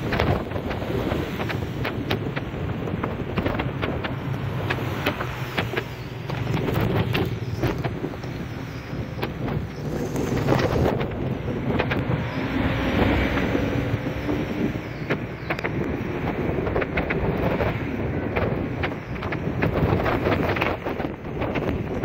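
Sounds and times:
rain ticking on microphone: 0.0 - 12.4
wind and road noise: 0.0 - 22.0.

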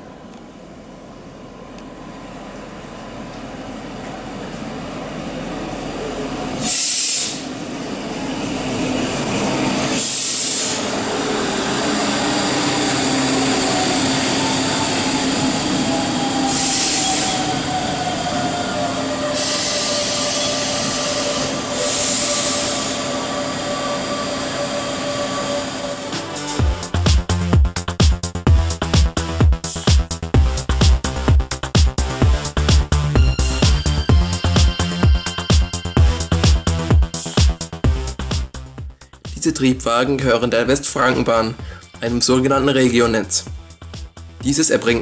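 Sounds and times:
train wheel squeal: 6.6 - 26.4.

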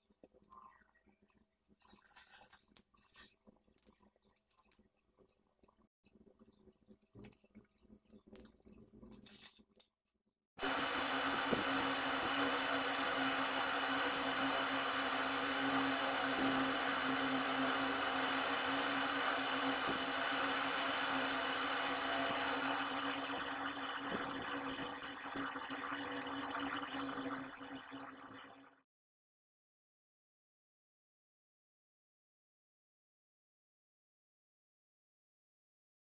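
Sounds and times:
machine whir with low hum: 10.6 - 28.6.

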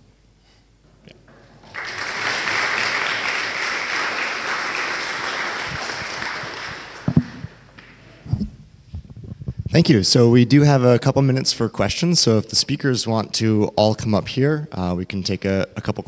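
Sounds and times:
audience applauding: 1.6 - 7.6.

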